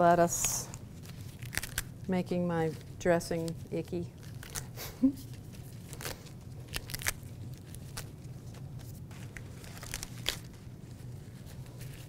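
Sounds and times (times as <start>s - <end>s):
low room hum: 0.0s - 12.0s
lettuce leaves tearing: 0.4s - 12.0s.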